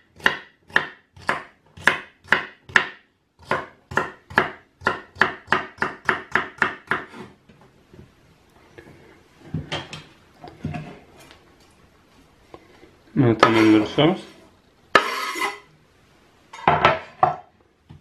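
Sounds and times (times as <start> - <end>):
knife chopping on wooden board: 0.2 - 7.2, 15.0 - 15.2.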